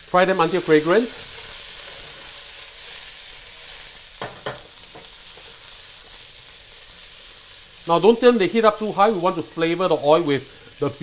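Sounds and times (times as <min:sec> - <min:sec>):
onions sizzling in oil: 0:00.0 - 0:11.0
spatula knocking against pan: 0:04.2 - 0:05.1.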